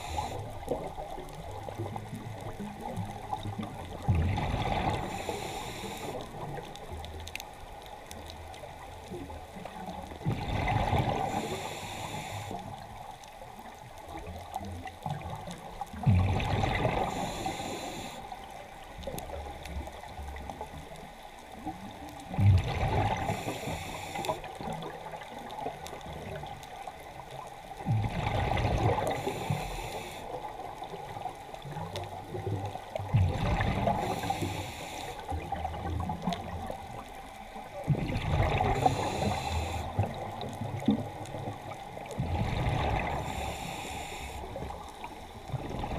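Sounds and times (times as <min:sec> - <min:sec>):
regulator hiss: 0:05.1 - 0:06.4, 0:11.3 - 0:12.7, 0:17.1 - 0:18.3, 0:23.3 - 0:24.4, 0:29.2 - 0:30.3, 0:34.0 - 0:35.3, 0:38.8 - 0:40.0, 0:43.2 - 0:44.6.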